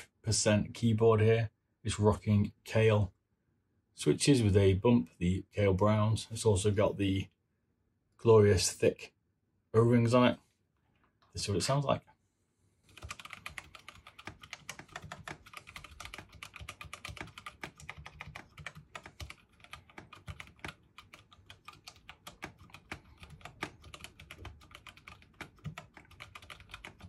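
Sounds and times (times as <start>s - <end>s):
mechanical keyboard typing: 12.9s - 27.0s.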